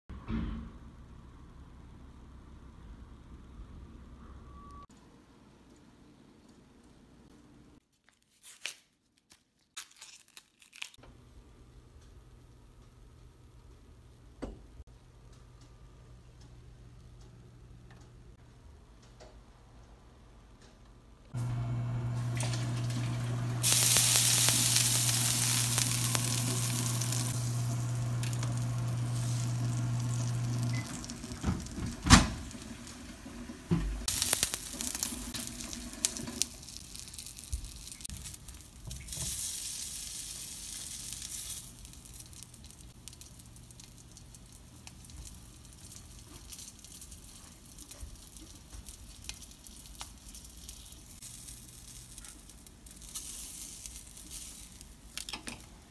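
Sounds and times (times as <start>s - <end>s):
low hum: 21.4s - 35.7s
liquid sizzling in skillet: 21.4s - 55.0s.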